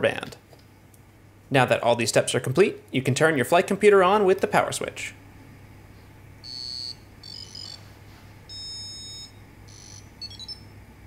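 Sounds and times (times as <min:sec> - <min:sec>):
short high electronic beeps: 0:06.5 - 0:07.8, 0:08.5 - 0:10.7.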